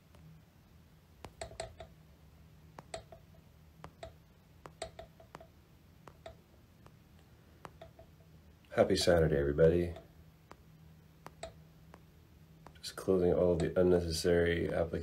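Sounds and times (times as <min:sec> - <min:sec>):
faint low hum: 0:00.0 - 0:15.0
computer mouse clicks: 0:01.2 - 0:01.9, 0:02.8 - 0:07.0, 0:07.6 - 0:08.1, 0:11.2 - 0:12.0.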